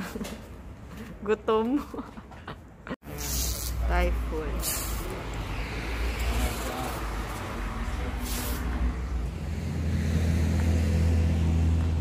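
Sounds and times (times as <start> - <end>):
vehicle engine humming: 3.1 - 12.0
air hiss: 4.6 - 5.3, 8.2 - 8.8.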